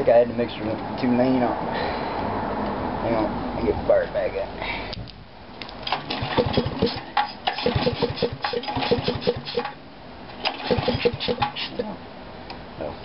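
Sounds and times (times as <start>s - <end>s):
small engine sputtering: 5.9s - 9.8s, 10.4s - 11.9s.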